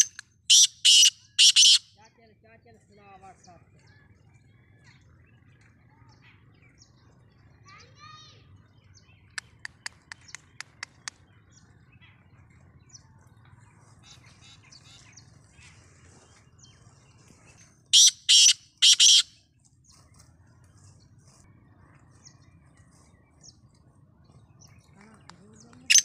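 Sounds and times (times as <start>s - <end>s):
bird ticking calls: 0.0s - 1.9s, 8.9s - 15.2s, 17.9s - 21.1s, 21.7s - 26.0s
harsh bird calls: 0.0s - 2.0s, 13.6s - 26.0s
faint bird chirps: 3.7s - 26.0s.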